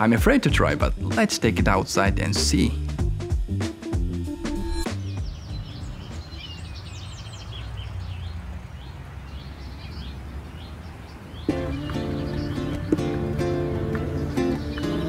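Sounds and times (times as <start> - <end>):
music: 0.0 - 6.4, 11.5 - 15.0
birds chirping and calling: 4.9 - 15.0.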